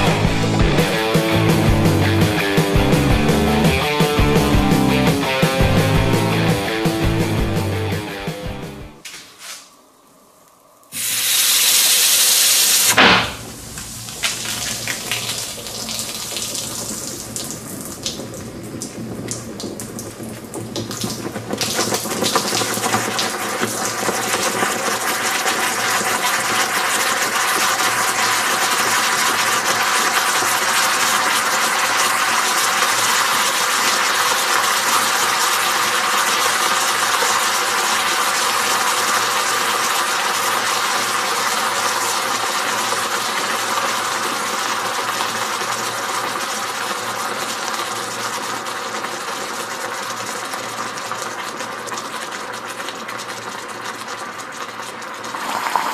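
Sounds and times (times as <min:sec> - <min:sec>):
hot metal sizzling in honey: 0:10.9 - 0:48.9.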